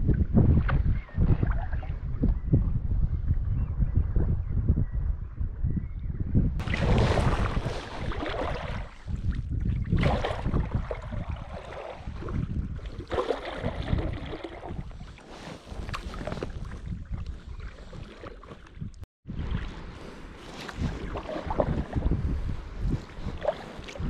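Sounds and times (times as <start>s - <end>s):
wind on microphone: 0.0s - 24.0s
kayak paddle splashing: 6.6s - 22.1s, 23.1s - 24.0s.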